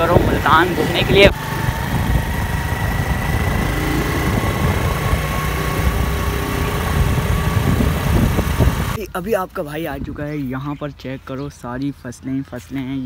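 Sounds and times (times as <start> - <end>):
motorcycle engine running: 0.0 - 9.0
wind noise: 0.0 - 9.0.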